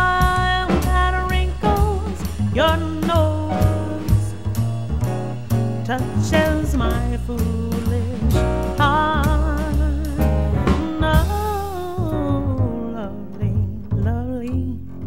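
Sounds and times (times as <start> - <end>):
drum kit: 0.0 - 15.0
upright bass: 0.0 - 15.0
woman scat singing: 5.9 - 14.8.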